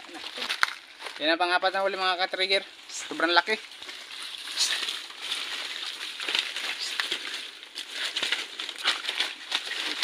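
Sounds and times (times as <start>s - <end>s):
dry leaves and twigs rustling: 0.0s - 10.0s.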